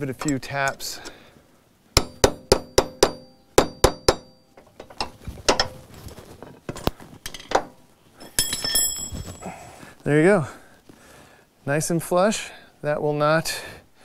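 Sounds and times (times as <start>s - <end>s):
metal-on-metal tapping: 0.1s - 1.2s, 2.0s - 5.8s, 6.7s - 9.1s.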